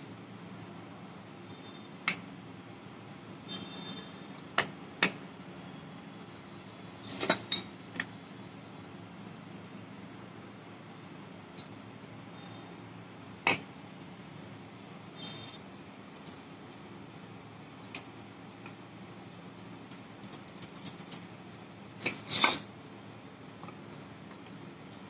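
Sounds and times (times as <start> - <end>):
metal parts clicking: 16.2 - 16.4, 19.3 - 21.3.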